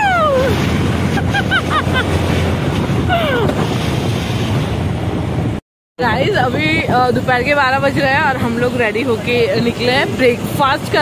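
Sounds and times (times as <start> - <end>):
falling whoop: 0.0 - 0.6
wind buffeting microphone: 0.0 - 11.0
woman laughing: 1.1 - 2.2.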